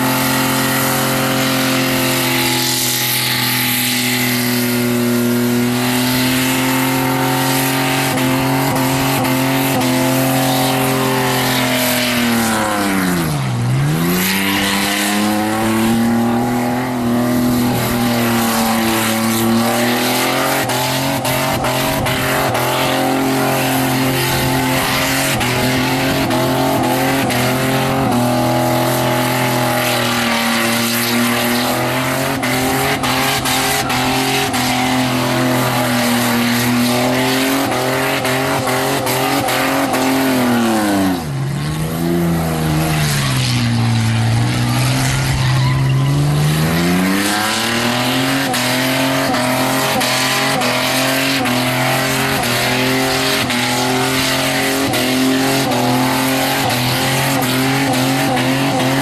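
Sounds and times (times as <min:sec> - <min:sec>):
car engine at high revs: 0:00.0 - 0:59.0
tyres squealing: 0:43.0 - 0:59.0.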